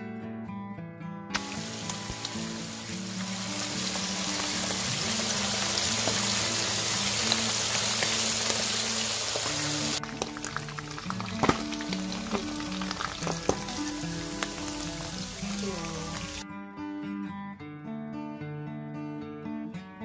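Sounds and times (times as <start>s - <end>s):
background music: 1.2s - 20.0s
oil popping and crackling: 1.3s - 16.4s
fish sizzling in oil: 1.4s - 16.4s.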